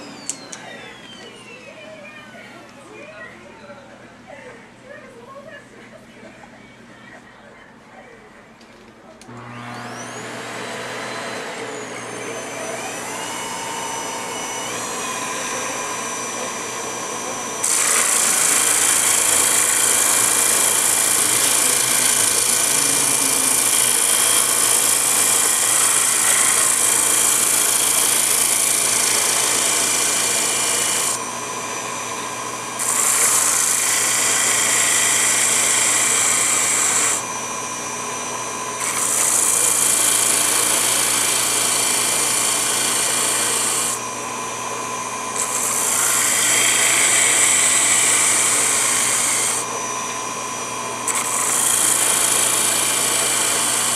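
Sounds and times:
small electric motor whining: 0.0s - 2.2s, 9.2s - 53.9s
spinning wood being sanded: 17.3s - 37.3s, 38.6s - 44.2s, 45.1s - 49.9s, 51.0s - 53.9s.

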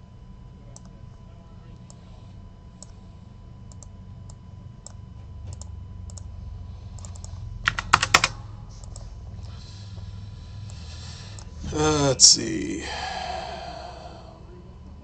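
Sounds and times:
computer keyboard typing: 6.9s - 9.0s.

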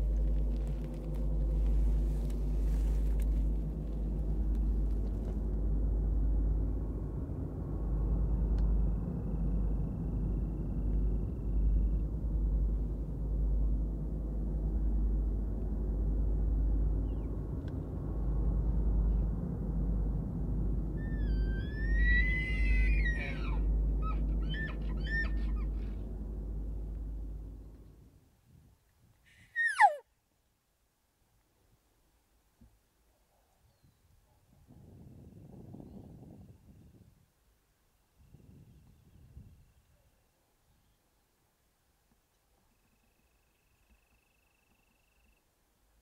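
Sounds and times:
deep rumble: 0.0s - 28.2s
elk bugling: 21.0s - 26.9s, 29.4s - 30.0s.

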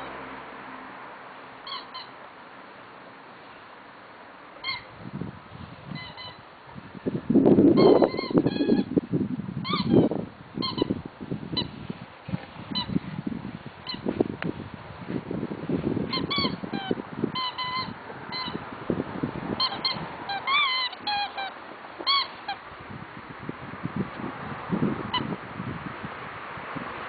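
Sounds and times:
rubber squeak toy squeaking: 1.6s - 2.1s, 4.6s - 4.9s, 5.9s - 6.4s, 7.8s - 8.9s, 9.6s - 11.0s, 12.7s - 13.0s, 13.8s - 14.1s, 16.1s - 18.6s, 19.6s - 22.6s.

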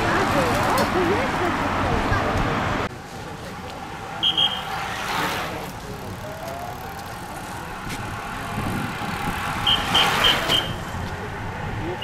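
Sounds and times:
bicycles swishing past: 3.4s - 11.1s.

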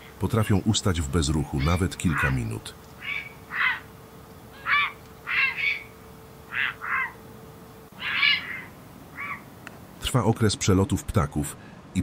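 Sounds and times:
ducks quacking: 1.6s - 3.9s, 4.6s - 5.9s, 6.5s - 7.2s, 8.0s - 9.4s.

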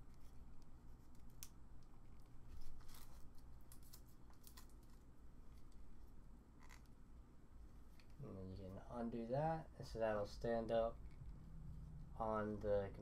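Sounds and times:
tape crinkling as it's peeled: 0.0s - 5.8s.

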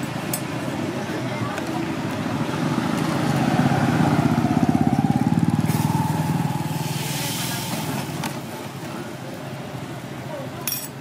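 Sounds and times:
hiss: 6.7s - 8.2s.

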